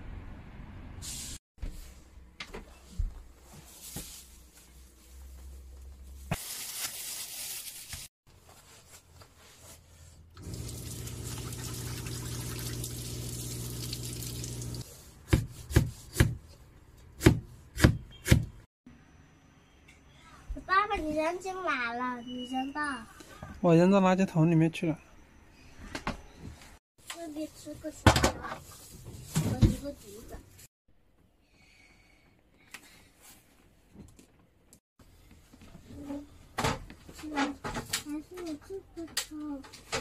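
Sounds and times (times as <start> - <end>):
tap water running into metal sink: 10.4 - 14.8
cleaver chopping on cutting board: 17.2 - 18.5.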